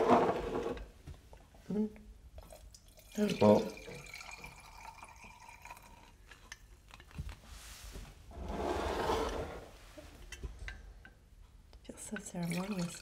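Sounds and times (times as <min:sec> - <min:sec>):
splashing pour: 0:02.4 - 0:06.2, 0:12.4 - 0:13.0.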